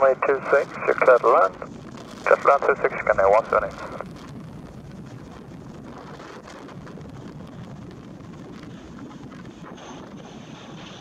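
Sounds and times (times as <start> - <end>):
high whine: 0.0 - 11.0
turboprop plane droning: 0.0 - 11.0
wind buffeting microphone: 0.2 - 11.0.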